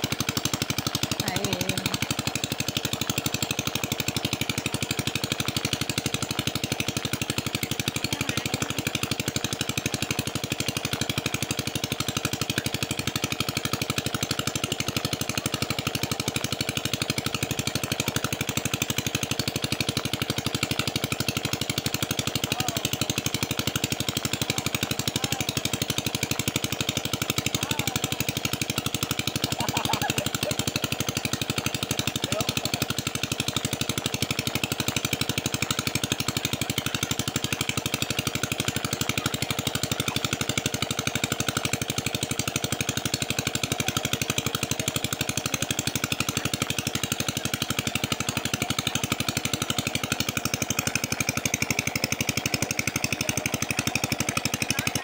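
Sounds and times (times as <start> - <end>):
small engine running: 0.0 - 55.0.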